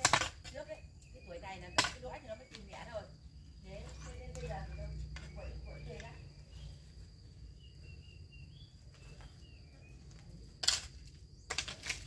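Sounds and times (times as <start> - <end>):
hoe striking stony soil: 0.0 - 0.8, 10.5 - 12.0
high insect trill: 0.0 - 12.0
bird chirps: 0.5 - 10.4.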